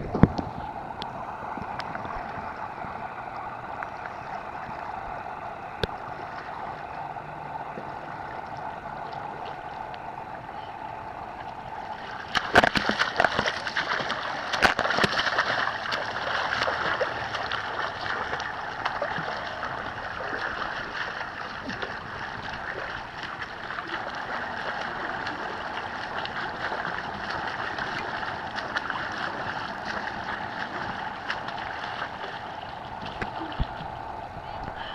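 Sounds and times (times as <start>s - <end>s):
rushing water noise: 0.0s - 34.9s
swimmer splashing: 0.0s - 34.9s
hands slapping water: 12.0s - 34.0s.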